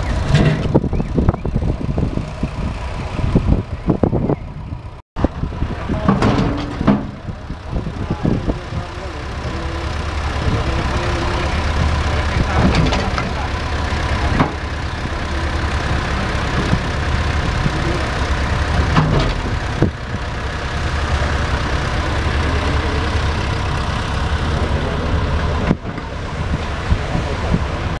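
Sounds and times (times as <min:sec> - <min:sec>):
tractor engine running: 0:00.0 - 0:28.0.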